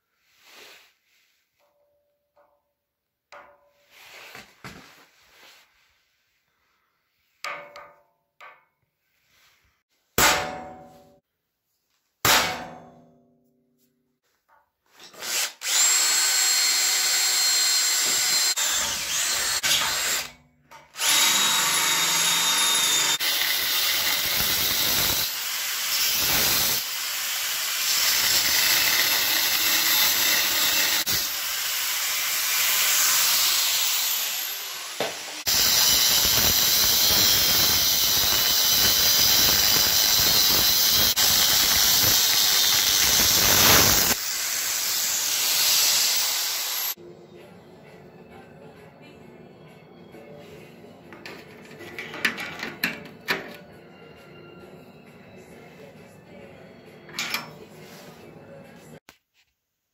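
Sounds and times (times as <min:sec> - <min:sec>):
angle grinder cutting steel: 0:14.9 - 0:47.0
cordless drill boring into steel: 0:15.1 - 0:20.3, 0:21.0 - 0:47.0.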